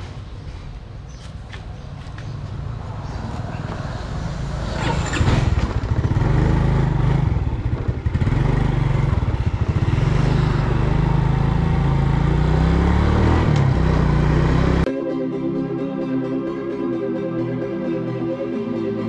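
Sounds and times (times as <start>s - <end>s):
scooter engine running: 4.8s - 14.8s.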